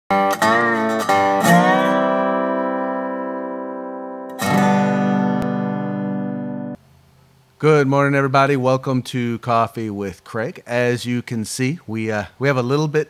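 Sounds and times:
guitar chords ringing: 0.1 - 6.8.

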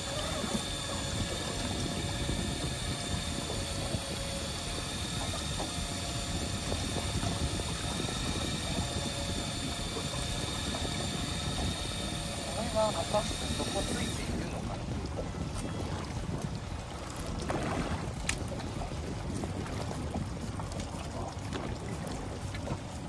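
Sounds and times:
faint high whine: 0.0 - 14.6
boat engine drone: 0.0 - 23.0.

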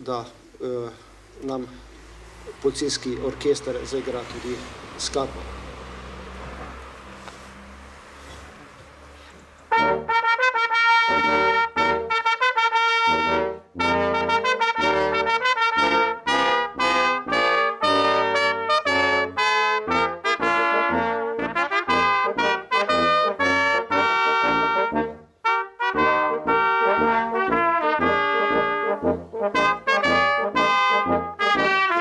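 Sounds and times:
brass quintet playing: 7.5 - 32.0.

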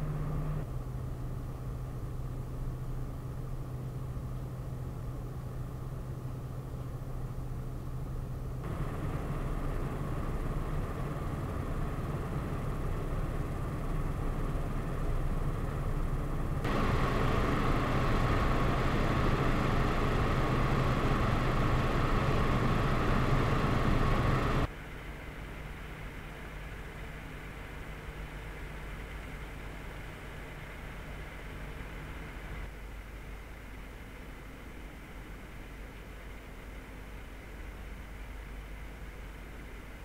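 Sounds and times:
high fan tone: 0.0 - 40.0
fan airflow rushing: 7.9 - 24.7.

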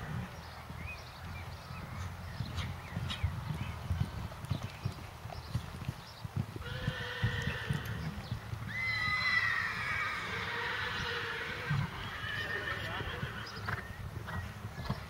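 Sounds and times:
hooves thudding on sand: 0.0 - 9.9.

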